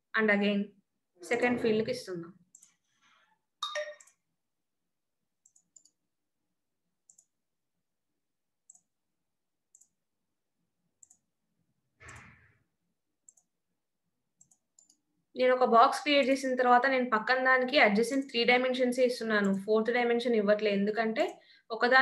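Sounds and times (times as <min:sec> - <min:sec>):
computer mouse clicking: 0:02.5 - 0:02.8, 0:05.4 - 0:06.0, 0:07.0 - 0:07.4, 0:08.7 - 0:08.9, 0:09.7 - 0:10.0, 0:11.0 - 0:11.3, 0:12.0 - 0:12.4, 0:13.3 - 0:13.5, 0:14.4 - 0:15.0.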